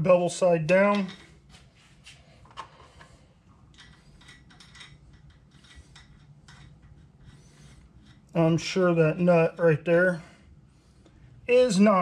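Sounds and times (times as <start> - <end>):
washer and nut rattling: 0.7 - 1.7, 2.4 - 9.4.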